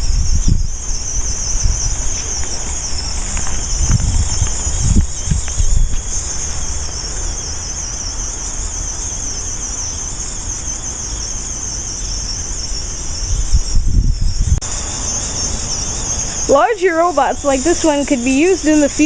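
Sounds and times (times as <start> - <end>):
crickets chirping: 0.0 - 19.0
robot motors and treads on grass: 1.3 - 6.6.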